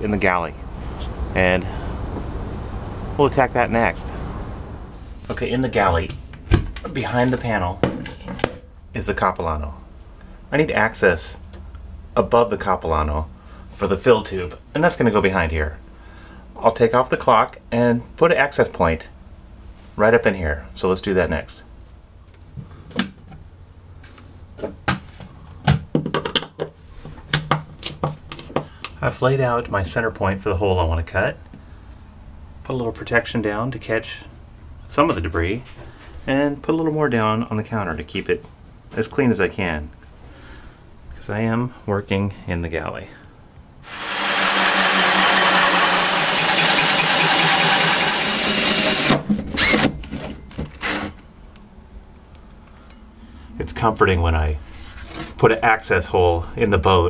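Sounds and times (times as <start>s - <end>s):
drill cutting through wood panel: 43.9s - 50.0s.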